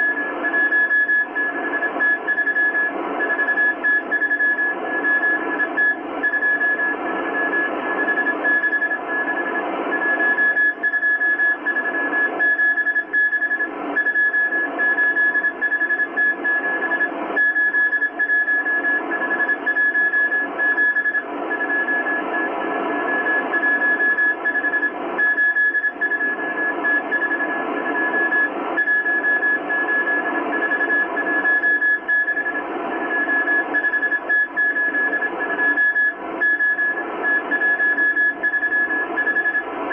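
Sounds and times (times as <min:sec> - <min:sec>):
morse code beeping tone: 0:23.0 - 0:39.7.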